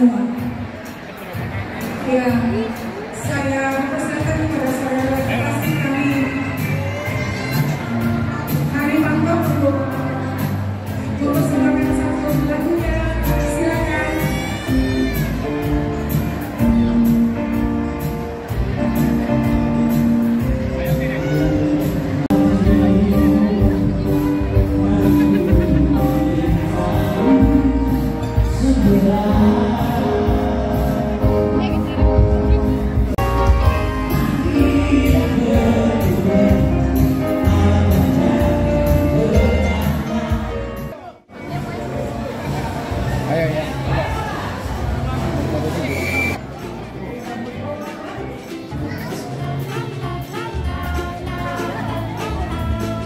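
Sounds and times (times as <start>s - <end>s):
person singing: 20.4s - 32.0s, 33.2s - 40.9s, 47.0s - 53.0s.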